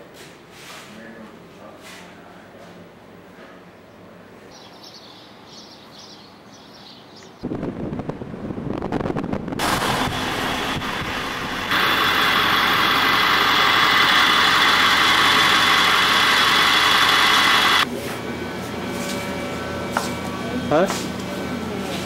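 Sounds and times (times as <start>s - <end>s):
motor running with hiss and whine: 9.6s - 17.9s.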